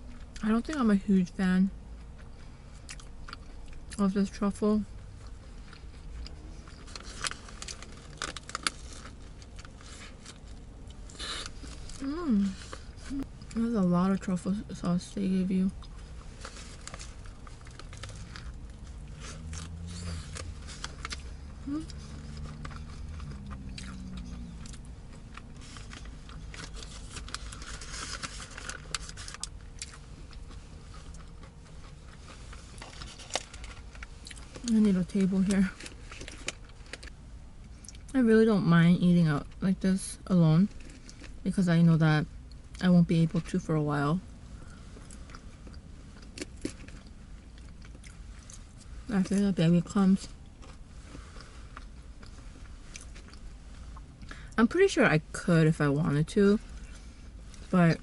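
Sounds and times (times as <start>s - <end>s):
steady low hum: 0.0s - 58.0s
paper wrapper rustling and crinkling: 6.7s - 10.7s, 16.2s - 37.2s.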